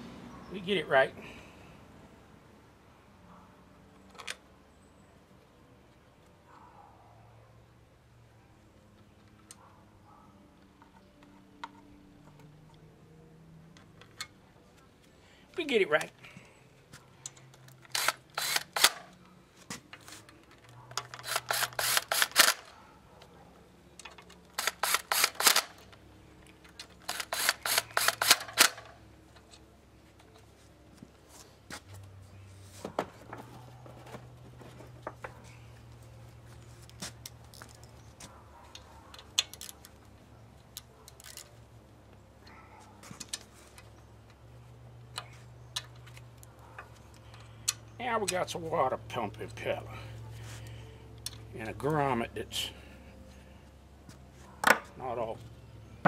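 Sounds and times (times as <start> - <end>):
hand ratchet clicking: 17.7 - 19.0, 21.2 - 22.7, 24.5 - 25.8, 27.0 - 28.9.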